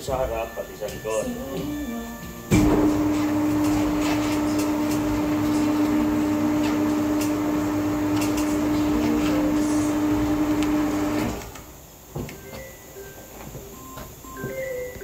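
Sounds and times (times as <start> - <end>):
electric motor humming: 2.0 - 11.7.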